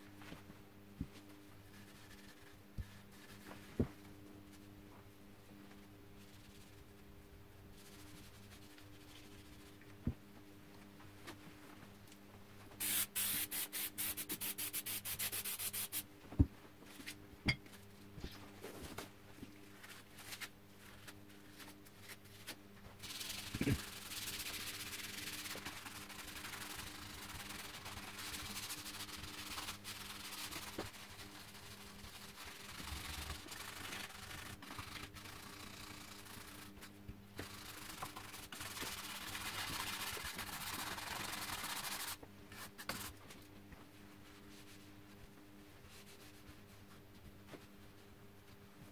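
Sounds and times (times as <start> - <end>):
brush scrubbing wood: 23.0 - 36.7
scratches: 23.0 - 43.1.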